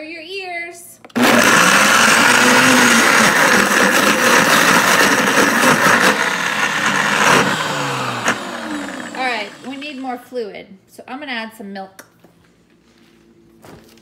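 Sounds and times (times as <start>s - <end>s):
blender churning ice: 1.2s - 10.0s
motor winding down: 1.2s - 10.0s.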